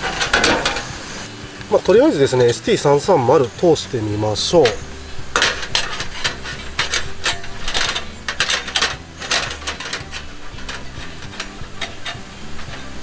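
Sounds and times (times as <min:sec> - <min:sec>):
metal clicking and rattling: 0:00.0 - 0:01.0, 0:04.4 - 0:13.0.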